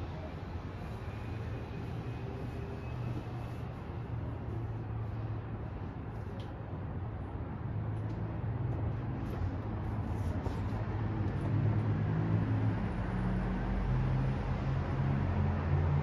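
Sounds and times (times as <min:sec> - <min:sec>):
traffic rumble: 0:00.0 - 0:16.0.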